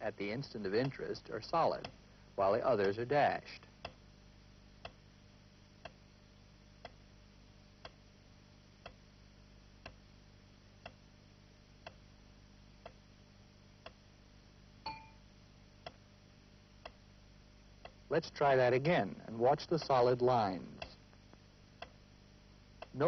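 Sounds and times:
faint low hum: 0.0s - 23.0s
sharp clock ticks: 0.8s - 1.0s, 2.8s - 3.0s, 19.6s - 21.0s
short ding: 14.9s - 15.2s.

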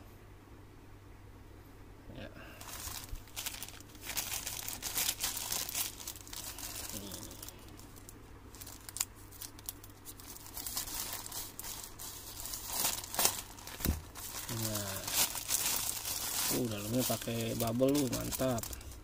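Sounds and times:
plastic packaging crinkling and tearing: 2.6s - 19.0s.

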